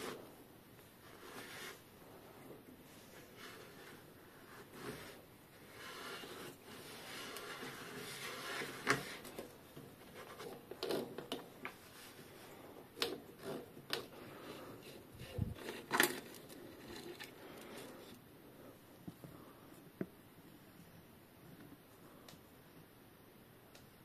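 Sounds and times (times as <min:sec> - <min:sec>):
tool rubbing and scraping: 0:03.2 - 0:09.2.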